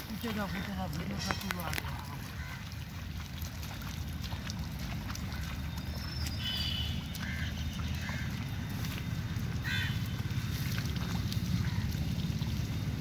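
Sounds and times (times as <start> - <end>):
splashes and squelches in mud: 0.0 - 13.0.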